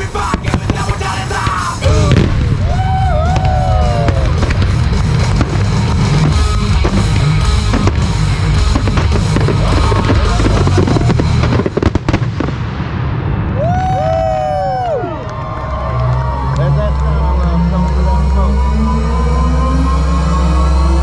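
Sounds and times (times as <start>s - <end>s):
fireworks bursts: 0.0s - 13.7s
music soundtrack: 0.0s - 14.2s, 14.9s - 21.0s.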